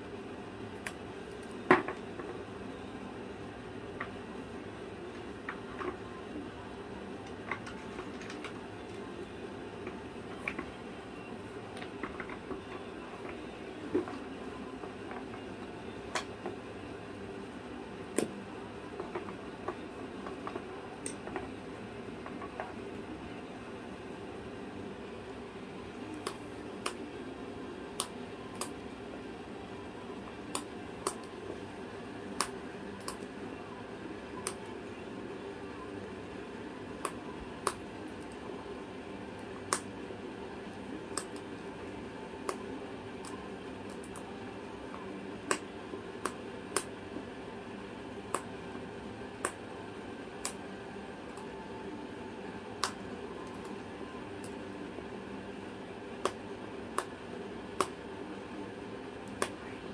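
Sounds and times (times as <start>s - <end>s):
steady background hum: 0.0s - 59.9s.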